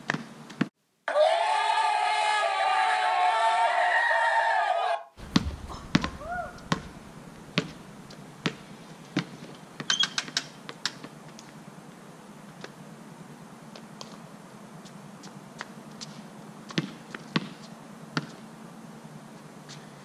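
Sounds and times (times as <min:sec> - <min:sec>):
basketball bouncing on stone: 0:05.2 - 0:10.0.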